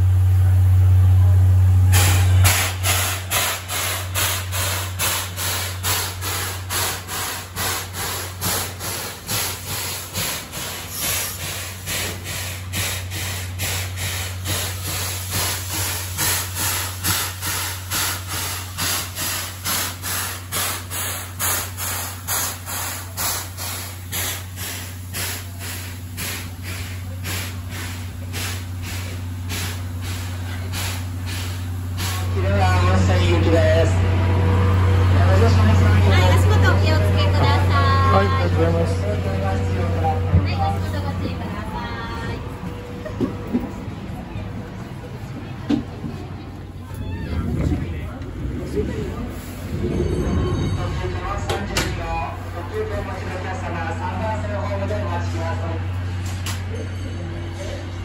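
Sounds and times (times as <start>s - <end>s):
low rumble: 0.0s - 18.8s, 25.9s - 56.2s
steam locomotive hissing rhythmically: 0.0s - 45.5s.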